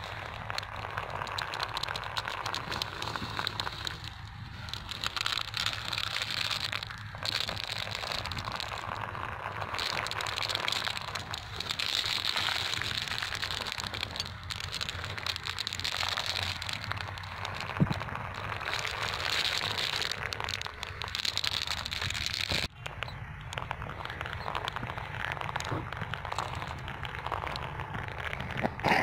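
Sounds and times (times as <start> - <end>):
marbles clicking together: 0.0 - 29.0
marbles rolling in sand: 0.0 - 29.0.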